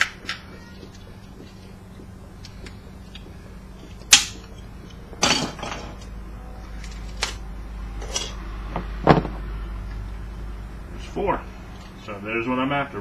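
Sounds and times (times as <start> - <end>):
metal parts and tools clattering: 5.2 - 6.1, 8.0 - 8.4.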